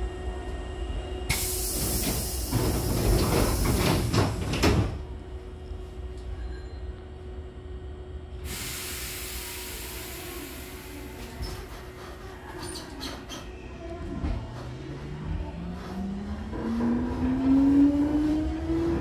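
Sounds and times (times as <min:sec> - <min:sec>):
train doors sliding shut: 0:01.3 - 0:05.2, 0:08.5 - 0:13.5.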